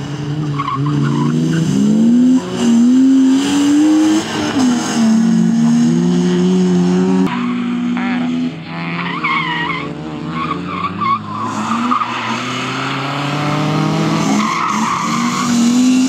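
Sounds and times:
car engine revving: 0:00.0 - 0:16.0.

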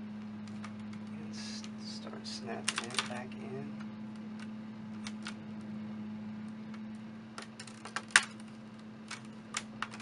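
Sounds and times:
steady low hum: 0:00.0 - 0:10.0
plastic clips clicking into place: 0:02.6 - 0:03.2, 0:07.4 - 0:10.0.

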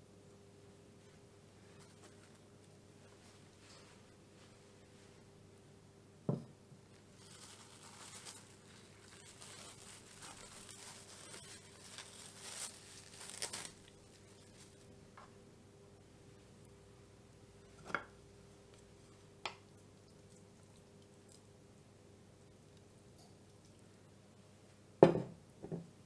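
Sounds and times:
cling film crinkling and tearing: 0:07.0 - 0:14.9.

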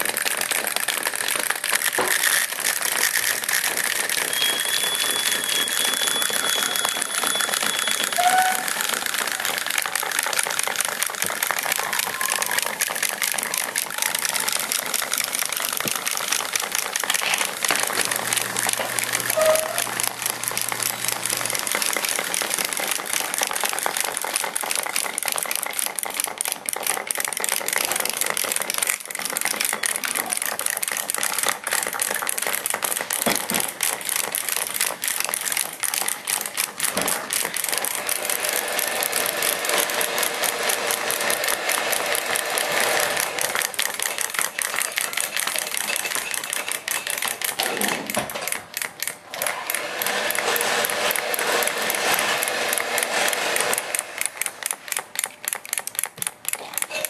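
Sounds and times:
clockwork toys rattling clicks: 0:00.0 - 0:57.0.

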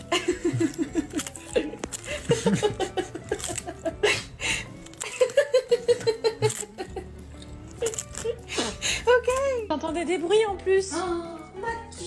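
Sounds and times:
person laughing: 0:00.0 - 0:07.2.

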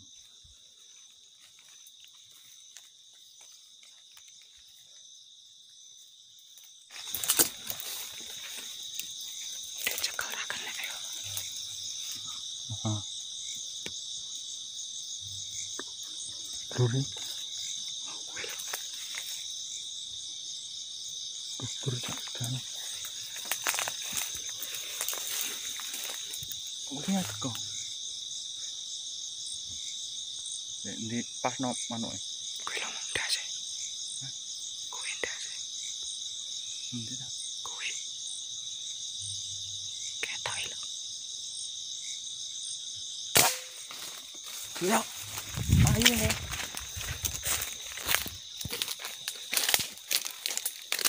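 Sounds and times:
crickets chirping: 0:00.0 - 0:51.0
insects trilling: 0:00.0 - 0:51.0.

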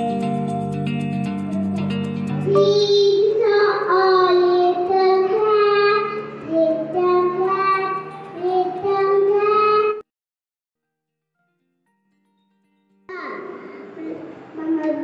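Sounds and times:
girl singing: 0:02.4 - 0:10.0, 0:13.1 - 0:15.0.

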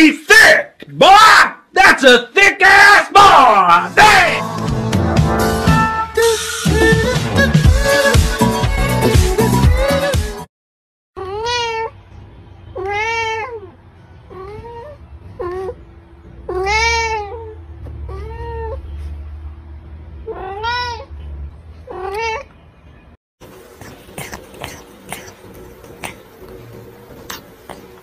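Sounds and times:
cat meowing: 0:11.2 - 0:12.0, 0:12.8 - 0:15.8, 0:16.4 - 0:19.0, 0:20.2 - 0:21.2, 0:21.9 - 0:22.6.

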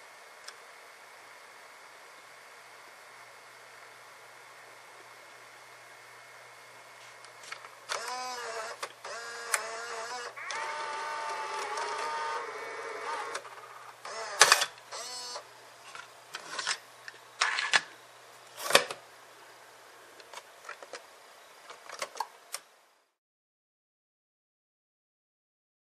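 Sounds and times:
cassette recorder mechanism running: 0:07.8 - 0:15.5.

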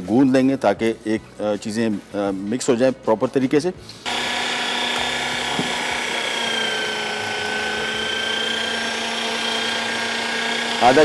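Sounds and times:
electric meat grinder whine: 0:04.1 - 0:11.0.

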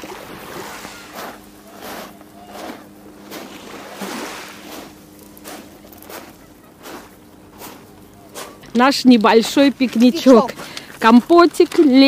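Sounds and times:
waves washing onto stony shore: 0:00.0 - 0:06.2
faint low hum: 0:00.0 - 0:12.0.

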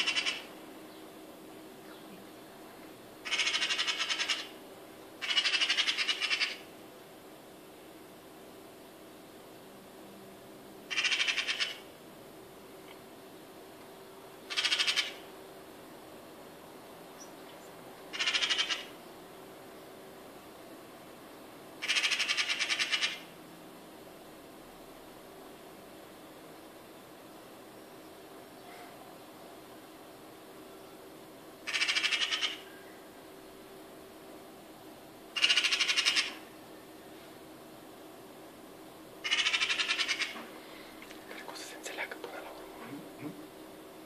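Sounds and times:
magpie rattling chatter: 0:00.0 - 0:00.5, 0:03.2 - 0:04.6, 0:05.2 - 0:06.7, 0:10.9 - 0:11.9, 0:14.5 - 0:15.2, 0:18.1 - 0:19.0, 0:21.8 - 0:23.2, 0:31.6 - 0:32.6, 0:35.4 - 0:36.4, 0:39.2 - 0:40.4.

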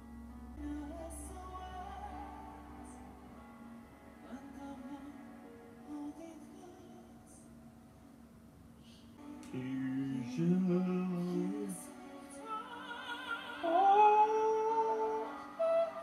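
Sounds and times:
backing music: 0:09.2 - 0:16.0
man singing: 0:09.4 - 0:12.2, 0:13.6 - 0:16.0.

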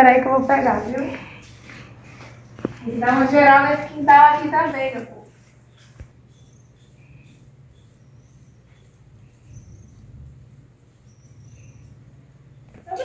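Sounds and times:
high bird chirps: 0:05.7 - 0:10.2, 0:10.9 - 0:12.1.

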